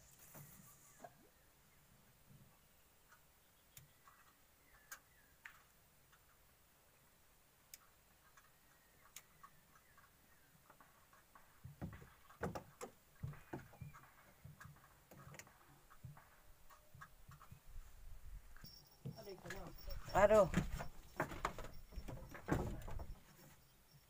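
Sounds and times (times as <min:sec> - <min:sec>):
knocks and thumps on wooden boat: 0:11.5 - 0:16.4, 0:19.0 - 0:23.3.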